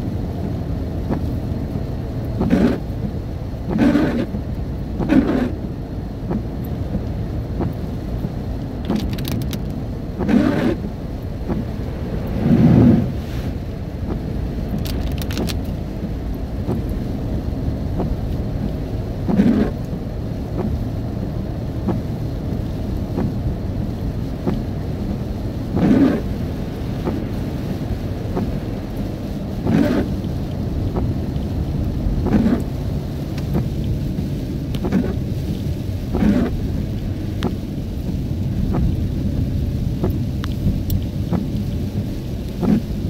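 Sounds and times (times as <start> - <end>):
car and tyres rumbling: 0.0 - 43.0
rain hiss: 0.0 - 43.0
brief swish: 12.3 - 13.6.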